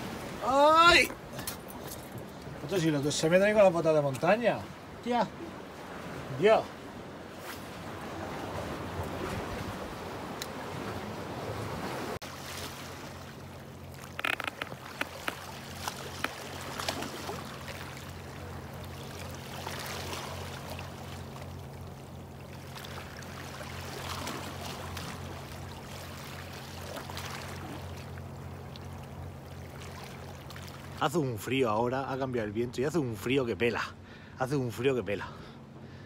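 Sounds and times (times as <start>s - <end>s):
water lapping among rocks: 7.4s - 31.0s.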